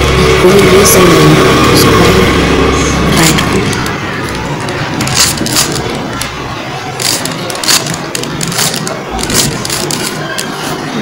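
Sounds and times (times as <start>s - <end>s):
plastic cube turning clicks: 7.0s - 10.6s.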